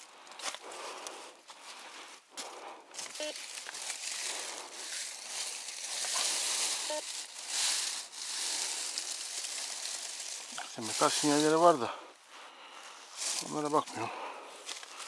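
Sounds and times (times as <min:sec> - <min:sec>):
dry leaves crackling: 0:00.0 - 0:12.0, 0:12.6 - 0:15.0
metal detector beep: 0:03.2 - 0:03.4, 0:06.8 - 0:07.1.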